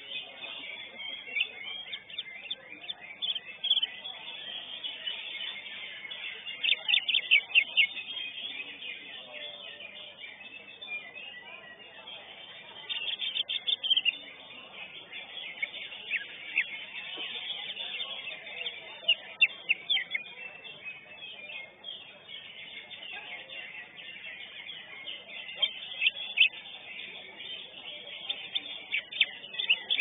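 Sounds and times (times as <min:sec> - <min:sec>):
other songbirds: 0:00.0 - 0:30.0
bird singing sharp chirps: 0:12.7 - 0:30.0.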